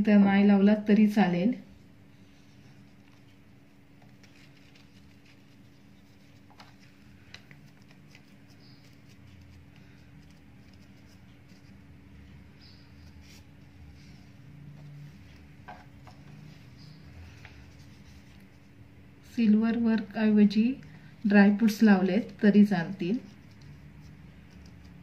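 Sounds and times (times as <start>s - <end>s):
steady low hum: 0.0s - 25.0s
paper rustling and tapping: 4.0s - 11.7s.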